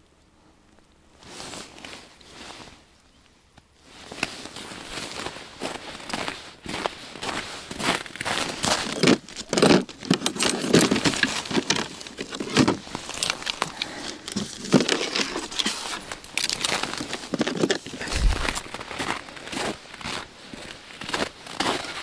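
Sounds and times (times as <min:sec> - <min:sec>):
footsteps crunching on snow and ice: 0:03.8 - 0:22.0
dull low thump: 0:18.1 - 0:18.6.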